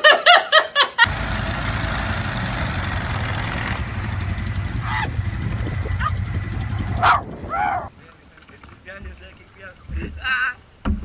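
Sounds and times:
mud spray hissing: 1.0 - 6.4
engine running hard: 1.0 - 7.9
wheels spinning in mud: 1.0 - 9.9
person shouting: 4.8 - 5.1.

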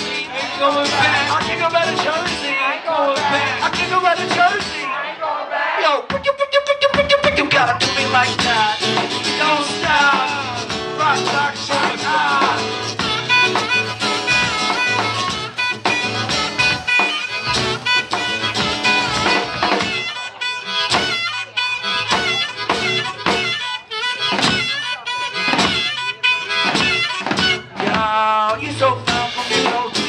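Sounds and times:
drum kit: 0.0 - 2.6, 3.2 - 4.9, 6.0 - 30.0
acoustic guitar: 0.0 - 5.1, 6.1 - 30.0
harmonica bending notes: 6.1 - 28.4.

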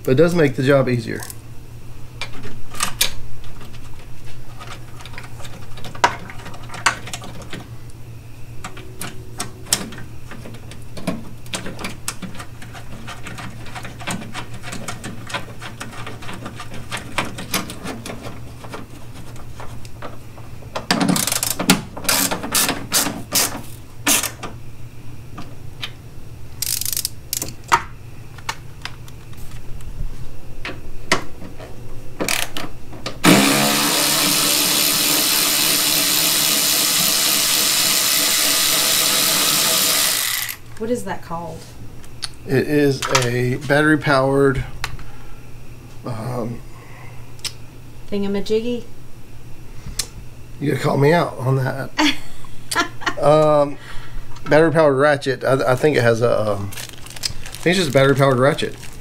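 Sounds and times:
steady low hum: 0.0 - 59.0
cordless ratchet running: 21.2 - 23.5, 26.6 - 27.5, 33.2 - 40.6
metal clicking and ratcheting: 21.2 - 23.5, 26.6 - 27.5.

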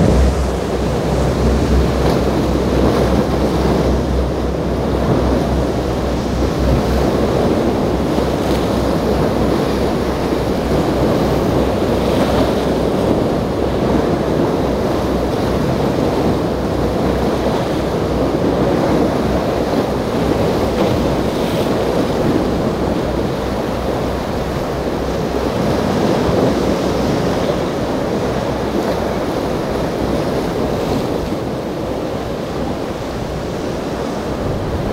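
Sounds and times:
motor yacht engine: 0.0 - 34.9
waves breaking and surf: 0.0 - 34.9
wind buffeting microphone: 0.0 - 34.9.

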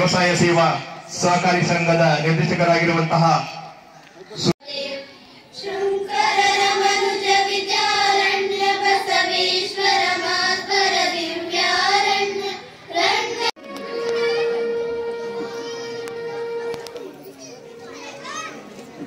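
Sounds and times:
young voices singing: 4.6 - 13.6.

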